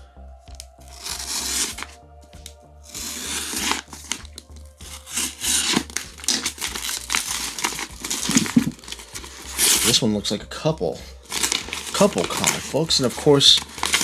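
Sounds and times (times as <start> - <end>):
paper envelope tearing: 0.9 - 2.0, 2.8 - 10.1, 11.2 - 14.0.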